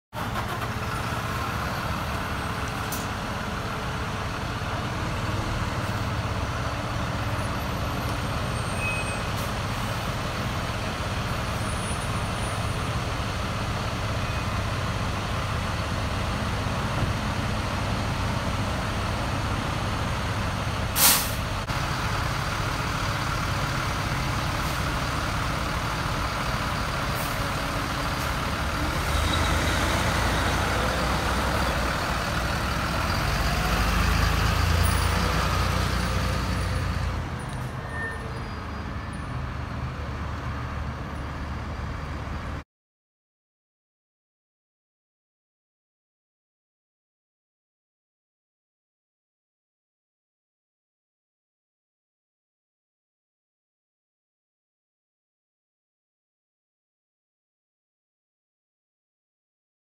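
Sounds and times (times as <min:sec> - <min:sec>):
diesel engine running: 0:00.2 - 0:42.6
air brake hiss: 0:21.0 - 0:21.5.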